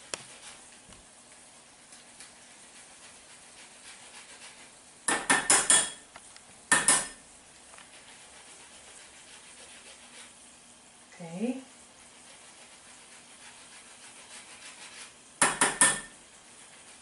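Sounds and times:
metal grater knocking on glass bowl: 15.4s - 16.2s.

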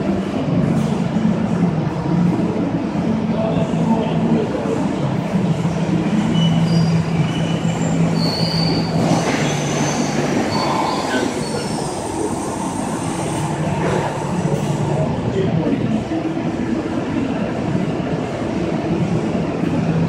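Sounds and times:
machinery noise with low hum: 0.0s - 20.0s
high-pitched machine squeals: 6.1s - 13.0s.

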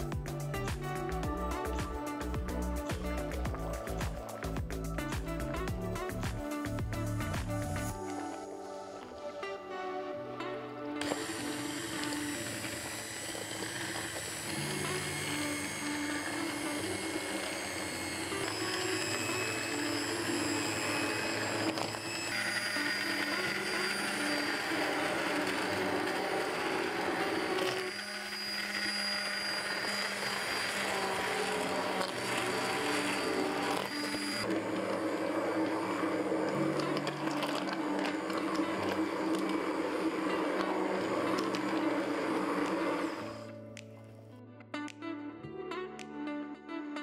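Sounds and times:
immersion blender whirring: 11.0s - 43.6s.

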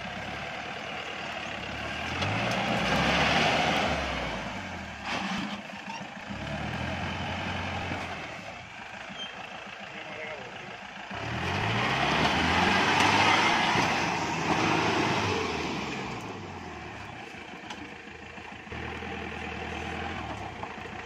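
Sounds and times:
engine revving hard: 1.6s - 5.6s, 6.3s - 8.4s, 11.1s - 17.1s
tyres spinning on gravel: 16.6s - 21.0s.

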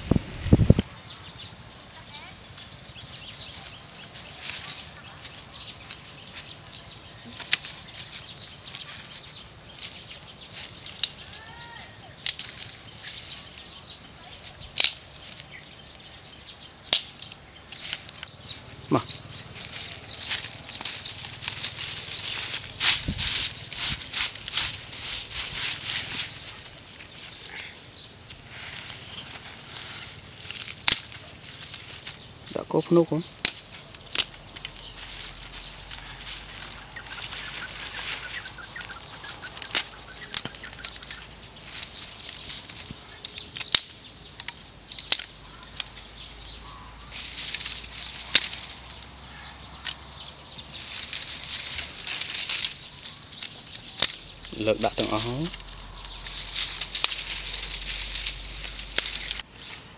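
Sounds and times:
hand sweeping dry leaves: 0.0s - 0.9s, 3.1s - 6.7s, 7.3s - 15.6s, 17.6s - 43.4s, 45.6s - 49.9s, 50.6s - 59.9s
twig cracking: 12.2s - 12.9s, 14.7s - 15.7s, 16.9s - 18.3s, 18.9s - 50.1s, 50.7s - 59.9s.

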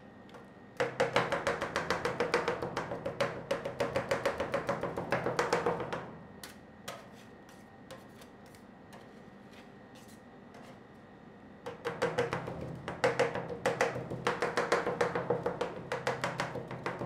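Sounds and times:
spatula taps and scrapes: 6.4s - 10.8s.

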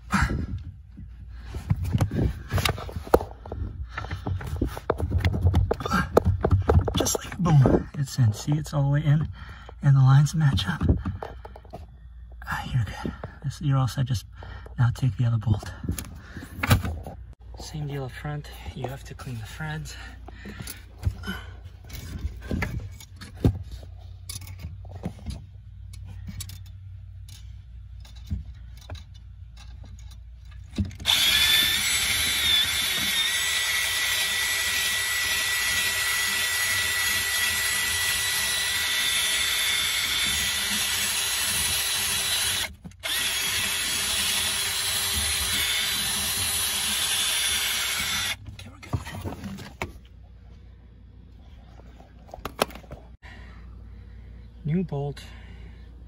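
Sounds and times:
tool handling clicks and knocks: 10.4s - 11.9s, 21.8s - 31.2s, 52.0s - 53.2s
cordless drill spinning: 30.9s - 48.4s.

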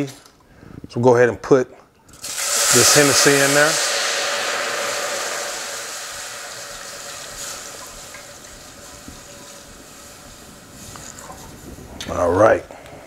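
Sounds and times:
liquid sizzling in hot pot: 2.1s - 12.0s.

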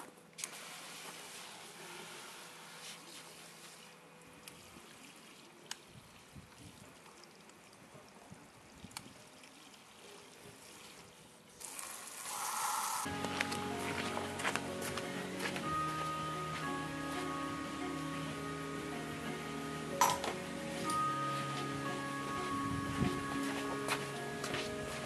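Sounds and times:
water trickling on plastic: 3.5s - 12.4s.

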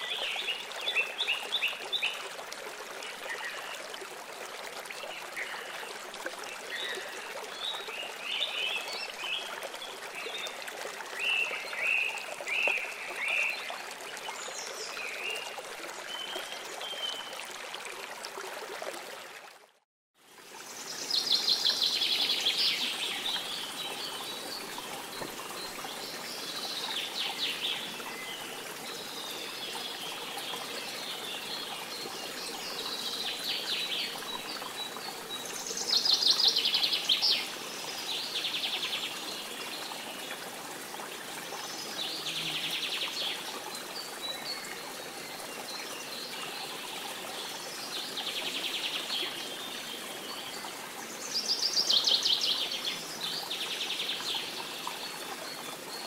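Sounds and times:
running water rushing: 0.0s - 56.0s.

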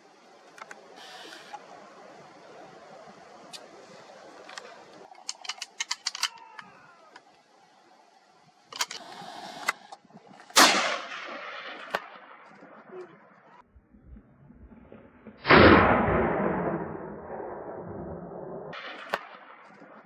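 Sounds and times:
sharp clicks: 4.4s - 7.4s
single cracks: 4.4s - 7.4s, 8.7s - 12.8s, 18.7s - 19.8s
rifle shot with echo: 10.6s - 12.6s, 15.4s - 19.7s.

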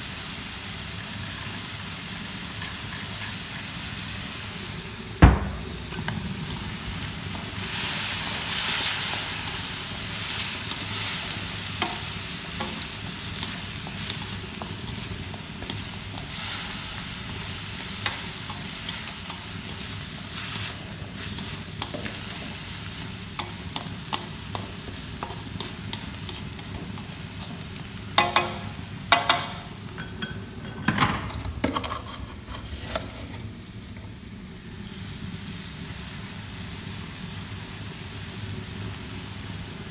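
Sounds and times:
meat sizzling in a wok: 0.0s - 39.9s
sharp knocks: 5.2s - 6.0s.

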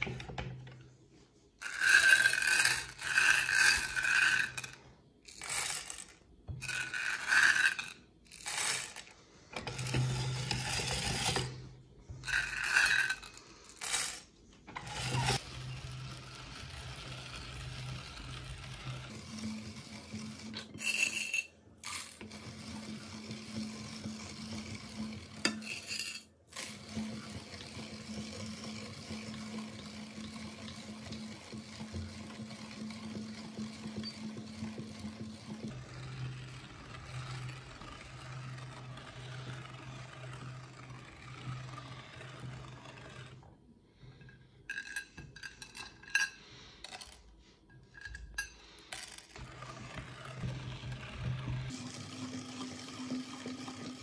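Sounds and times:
candies clattering on metal: 1.6s - 11.6s, 12.2s - 15.8s, 20.6s - 22.4s, 44.7s - 49.4s
grinder crushing candies: 1.6s - 11.6s, 12.2s - 43.4s.

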